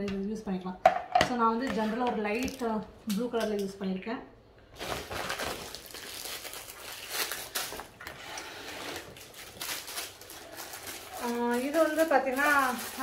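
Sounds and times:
plastic packaging crinkling: 0:04.7 - 0:13.0.

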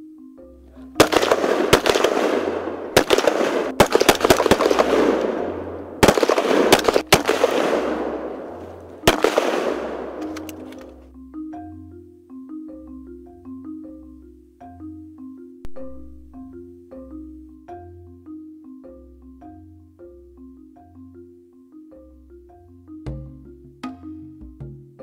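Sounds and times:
marimba background music: 0:00.0 - 0:25.0
loud rifle shots: 0:01.0 - 0:10.6.

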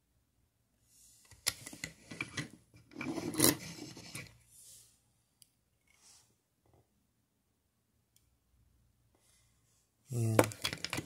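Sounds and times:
toy cars clicking and scraping: 0:01.3 - 0:04.4.

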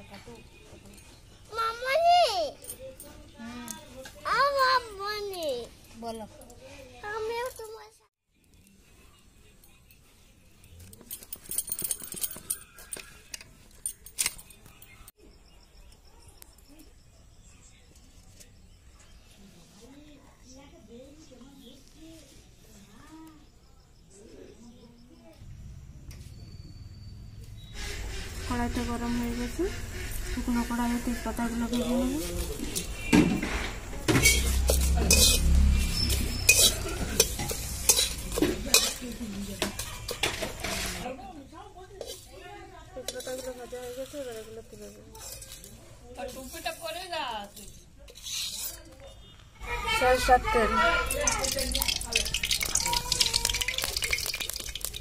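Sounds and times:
light clinks and rattles: 0:02.5 - 0:03.8, 0:09.5 - 0:15.1
metal spatula scraping metal pan: 0:34.1 - 0:41.2, 0:42.0 - 0:42.4, 0:43.0 - 0:49.0.

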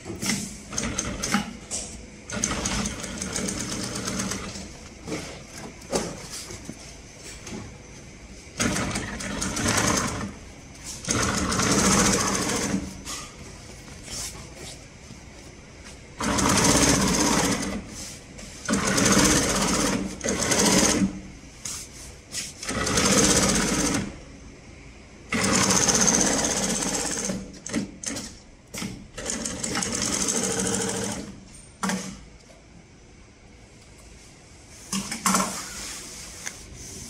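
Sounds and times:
industrial sewing machine stitching: 0:00.2 - 0:01.7, 0:02.3 - 0:05.2, 0:08.6 - 0:10.4, 0:11.0 - 0:13.0, 0:16.2 - 0:17.9, 0:18.6 - 0:21.2, 0:22.6 - 0:24.2, 0:25.3 - 0:32.2.

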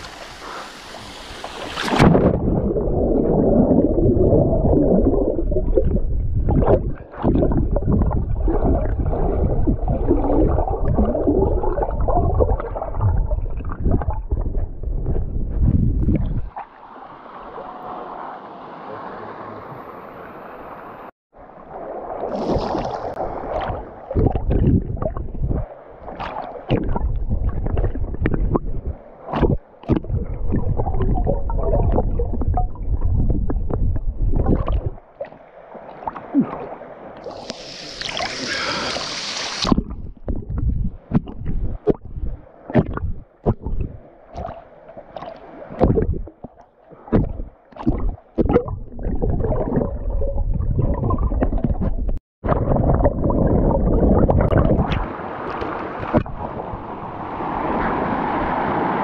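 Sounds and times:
water sloshing and gurgling: 0:00.0 - 0:18.3, 0:20.7 - 0:59.0
muffled underwater rumbling: 0:01.9 - 0:16.6, 0:22.3 - 0:35.1, 0:39.6 - 0:44.6, 0:45.2 - 0:55.2
hissing splash: 0:37.2 - 0:39.7.

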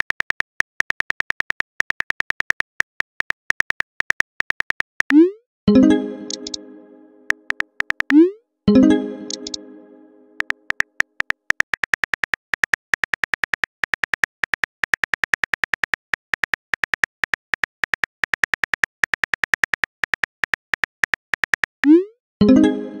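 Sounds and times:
keyboard typing clicks: 0:03.6 - 0:09.8, 0:10.4 - 0:12.3.

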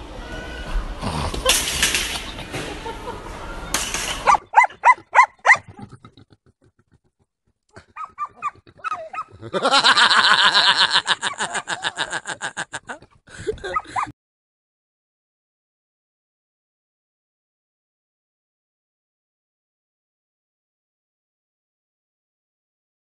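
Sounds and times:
animal yelping calls: 0:04.2 - 0:06.8, 0:07.8 - 0:09.5.

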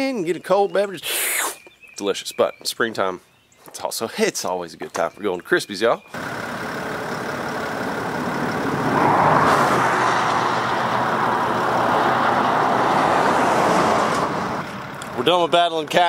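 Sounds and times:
highway traffic rushing by: 0:06.1 - 0:16.0.

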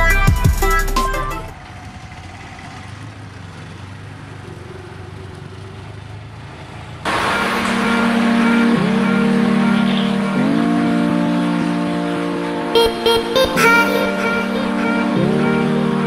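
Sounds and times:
auto-rickshaw engine humming: 0:01.2 - 0:13.1, 0:14.2 - 0:16.0
loud rushing noise with humming tones: 0:07.1 - 0:16.0.

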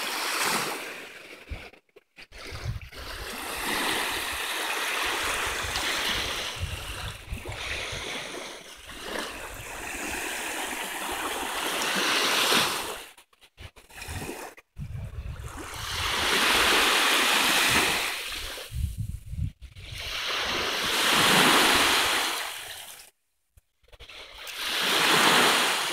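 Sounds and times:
small waves lapping on shore: 0:00.0 - 0:14.6, 0:15.2 - 0:18.8, 0:19.8 - 0:23.1, 0:23.9 - 0:25.9
wind rumble on microphone: 0:02.3 - 0:03.4, 0:05.1 - 0:08.3, 0:13.6 - 0:16.9, 0:17.6 - 0:20.7.

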